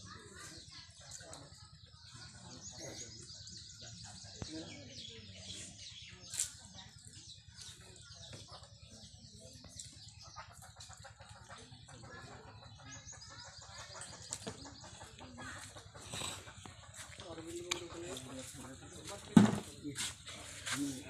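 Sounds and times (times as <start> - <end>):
small birds chirping: 0.0 - 21.0
chickens clucking: 7.6 - 20.9.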